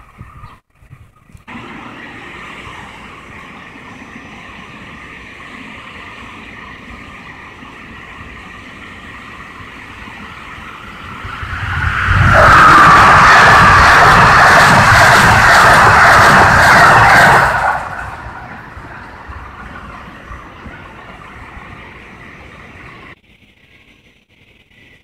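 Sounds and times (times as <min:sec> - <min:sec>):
passenger train approaching: 0:01.5 - 0:23.6.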